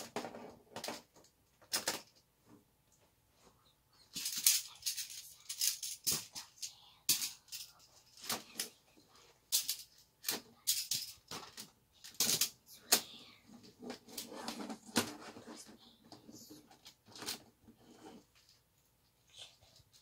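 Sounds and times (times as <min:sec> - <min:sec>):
plastic tiles clacking: 0:04.2 - 0:08.8.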